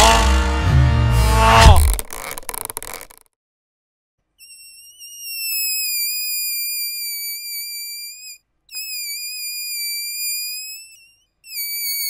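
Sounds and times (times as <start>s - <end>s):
high-pitched wavering screech: 4.4s - 12.0s.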